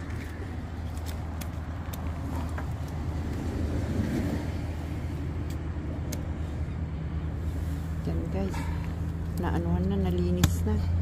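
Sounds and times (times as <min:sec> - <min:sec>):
low rumble of motor traffic: 0:00.0 - 0:11.0.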